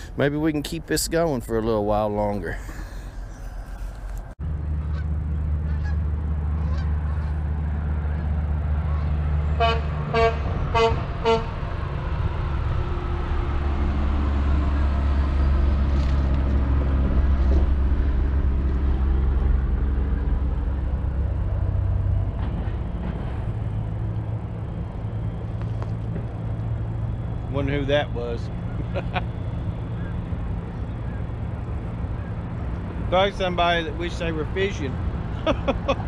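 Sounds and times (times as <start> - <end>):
road traffic rumble: 0.0 - 36.0
vehicle horn tooting: 9.6 - 11.6.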